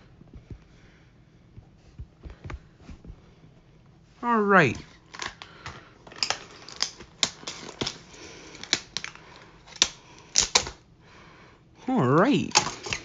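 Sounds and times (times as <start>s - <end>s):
plastic clips snapping: 5.1s - 10.8s, 12.4s - 13.0s.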